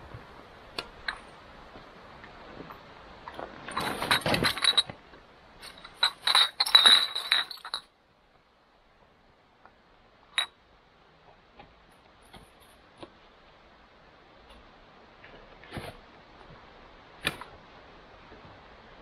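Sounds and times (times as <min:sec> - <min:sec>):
gear rattling and clinking: 0:03.3 - 0:05.0, 0:05.6 - 0:07.9
glassy clinks: 0:05.6 - 0:07.9.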